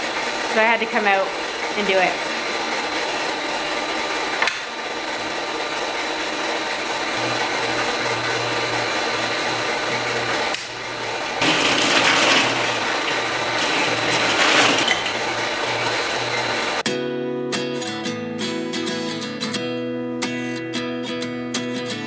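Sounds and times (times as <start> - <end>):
machinery running: 0.0 - 16.9.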